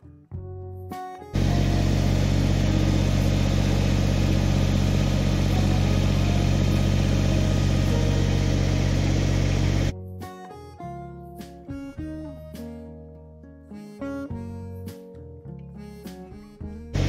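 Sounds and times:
diesel engine running steadily: 1.4 - 9.9.

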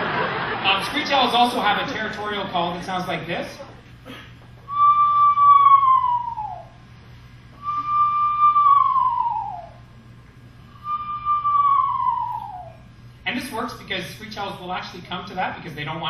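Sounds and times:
cupped-hands whistle owl call: 4.7 - 6.8, 7.6 - 9.9, 10.7 - 12.9.

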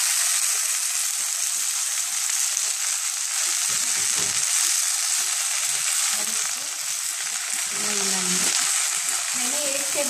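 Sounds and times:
leaves sizzling in hot oil: 0.0 - 10.0
spoon knocking and scraping pan: 3.4 - 5.9.

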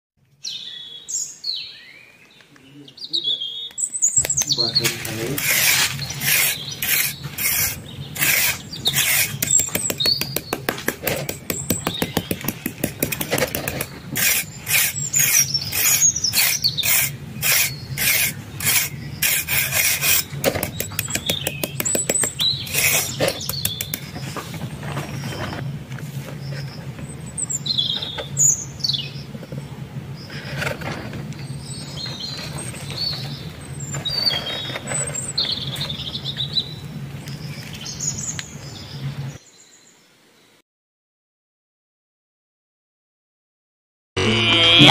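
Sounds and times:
birds chirping: 0.4 - 40.6
trowel scraping sand: 4.2 - 26.8, 32.2 - 36.1.

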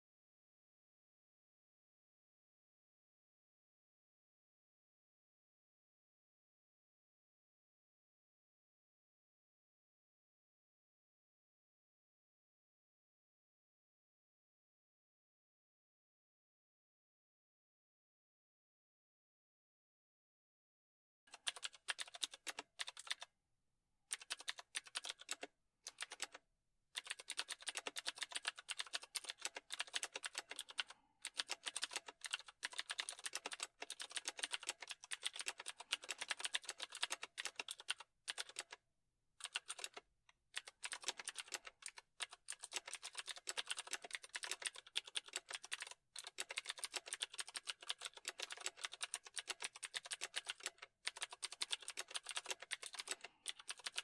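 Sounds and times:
computer keyboard typing: 21.3 - 23.3, 24.1 - 26.4, 27.0 - 38.8, 39.4 - 40.0, 40.6 - 54.0.

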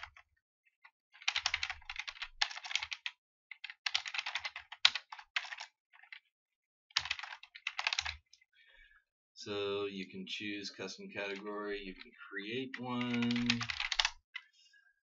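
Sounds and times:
fast typing on a keyboard: 0.0 - 0.2, 1.1 - 6.3, 6.9 - 8.3, 12.6 - 14.5.

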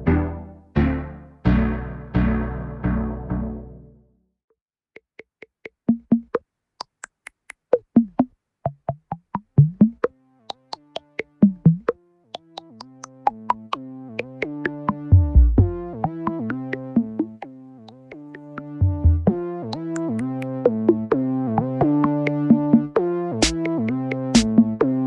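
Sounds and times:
drum-machine hits: 5.7 - 7.0, 7.7 - 17.4, 23.4 - 23.7, 24.4 - 24.8
synth plucks: 7.7 - 25.0
bass line: 13.4 - 17.4, 18.4 - 25.0.

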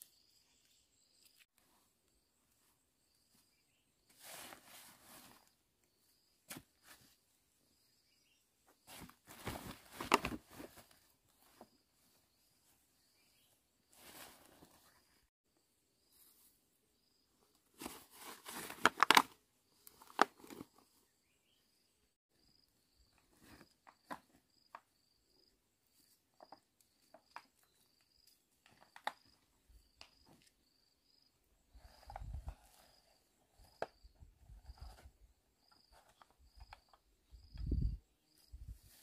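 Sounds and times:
insect chirping: 2.0 - 4.1, 5.2 - 6.8, 20.8 - 39.0
movement through dry undergrowth: 3.5 - 5.6, 8.8 - 15.2.

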